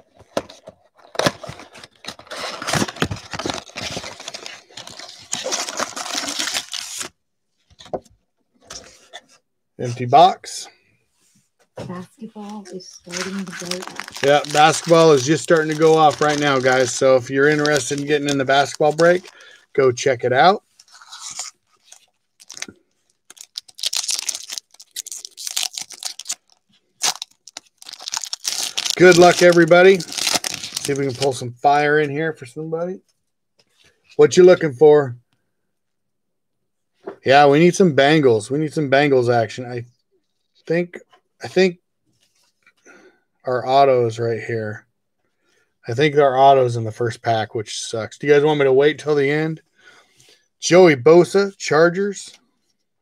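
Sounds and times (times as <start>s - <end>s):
packaging crinkling and crackling: 0.2s - 7.1s, 13.1s - 19.5s, 20.8s - 31.4s.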